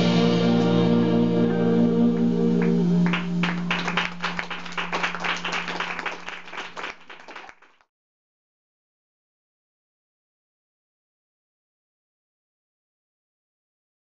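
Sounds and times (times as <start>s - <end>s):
jazz band held chord: 0.0s - 6.7s
audience applause: 2.6s - 7.8s.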